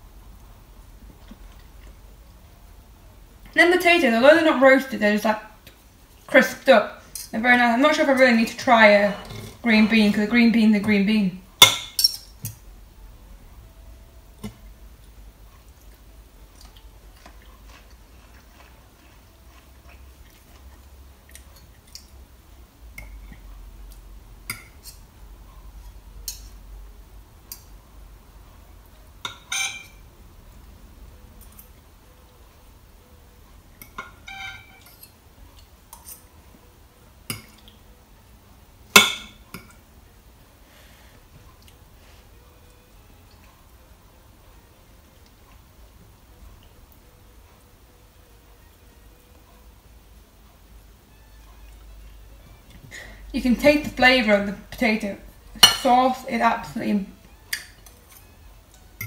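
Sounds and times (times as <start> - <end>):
cutlery clinking on a plate: 11.6 - 12.6, 29.2 - 30.0, 33.8 - 35.2.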